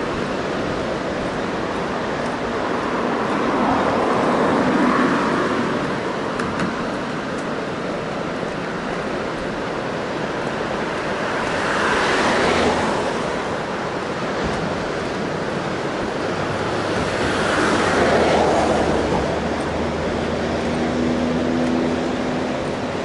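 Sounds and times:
road traffic: 0.0s - 23.0s
surf washing: 0.0s - 23.0s.

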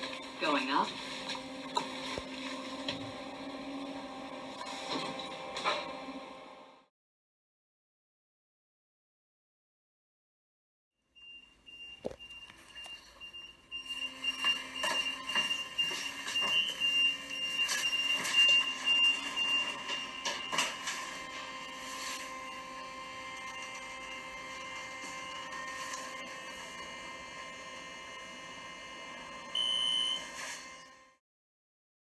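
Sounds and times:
elevator motor hum: 0.0s - 6.9s, 11.7s - 31.1s
elevator high-pitched tone: 11.2s - 31.2s.

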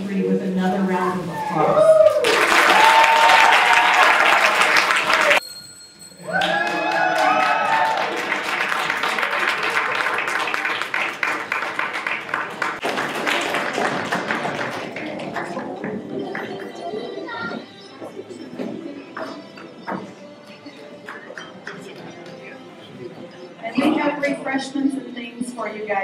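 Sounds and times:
audience applauding and cheering: 1.4s - 5.4s, 6.2s - 17.4s.

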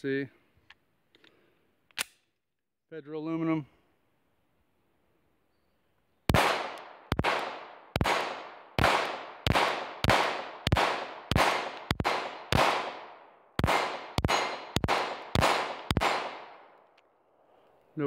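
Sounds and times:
pistol shots with echo: 6.3s - 16.8s.

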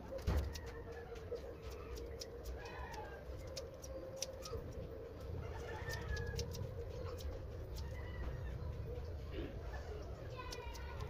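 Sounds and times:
scissors snipping fur: 0.0s - 4.8s.

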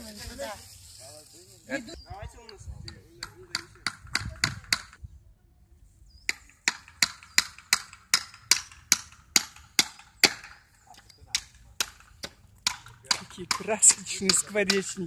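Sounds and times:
hammer driving nails into wood: 6.3s - 10.6s.

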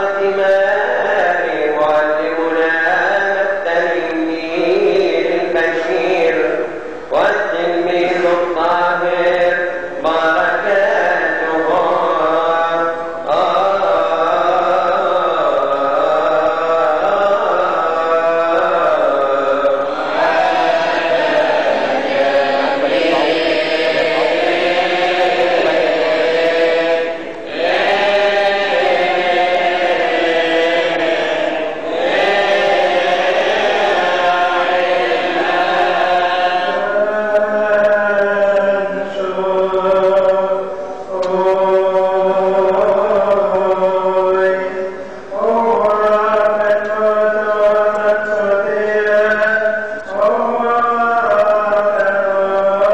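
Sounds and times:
man chanting through microphone: 0.0s - 52.9s.

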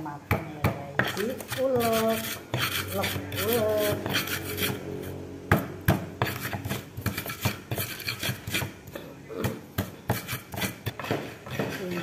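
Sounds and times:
stone pestle grinding in mortar: 0.3s - 12.0s.

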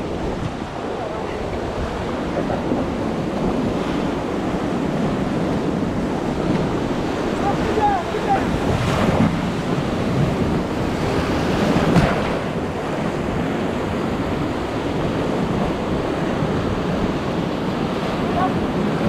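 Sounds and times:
rushing white water: 0.0s - 19.0s
wind buffeting microphone: 0.0s - 19.0s.

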